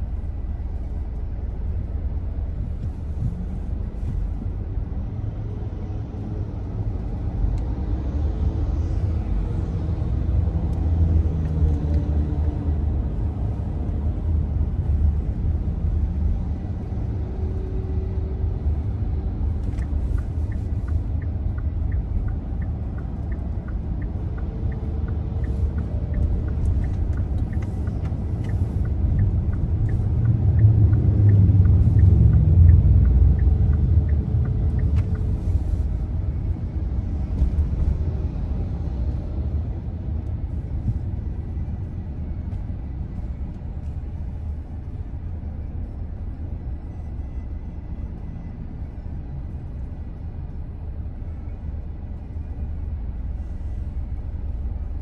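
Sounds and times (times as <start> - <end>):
road traffic rumble: 0.0 - 55.0.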